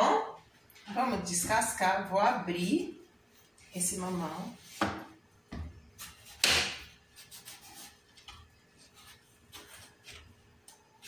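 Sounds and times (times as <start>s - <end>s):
knife scraping through fruit: 7.1s - 10.3s.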